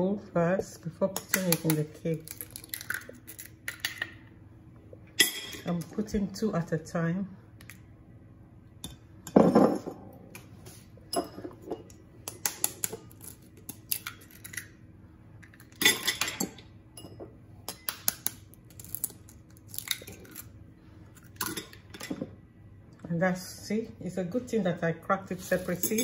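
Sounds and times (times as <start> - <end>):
eggs cracking: 1.3 - 4.2, 17.8 - 20.6.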